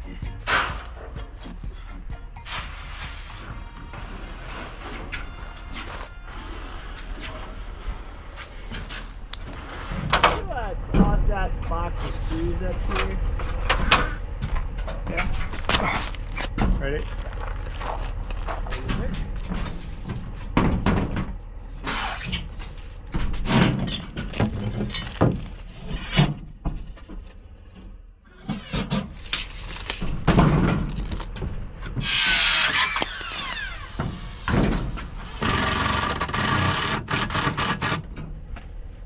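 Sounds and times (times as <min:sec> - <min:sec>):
power tool driving screws: 0:32.0 - 0:34.5, 0:35.2 - 0:38.1.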